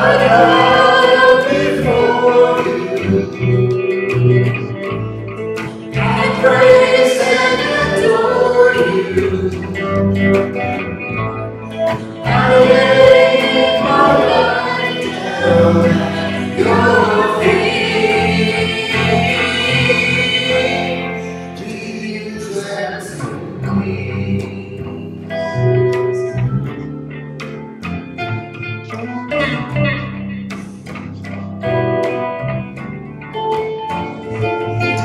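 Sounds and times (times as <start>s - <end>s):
voices singing together: 0.0s - 3.8s, 5.9s - 10.4s, 12.2s - 25.0s
strummed electric guitar: 0.0s - 35.0s.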